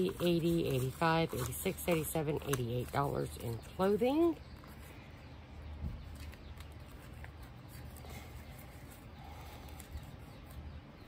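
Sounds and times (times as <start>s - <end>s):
plastic pages rustling: 0.0s - 4.9s, 6.1s - 9.0s
low steady hum: 0.0s - 11.0s.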